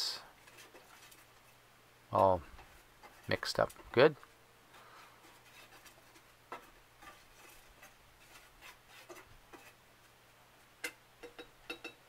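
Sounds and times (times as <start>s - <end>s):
stick stirring wax in metal pot: 5.2s - 9.8s.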